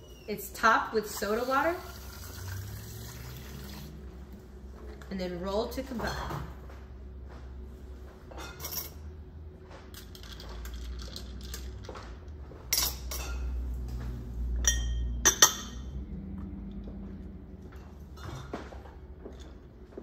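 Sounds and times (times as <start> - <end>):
low hum: 13.4 - 20.0.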